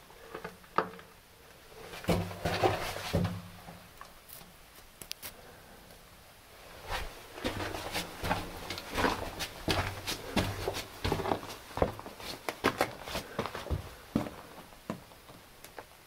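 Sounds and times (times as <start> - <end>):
footsteps on rocky floor: 1.9 - 3.4, 6.9 - 15.4.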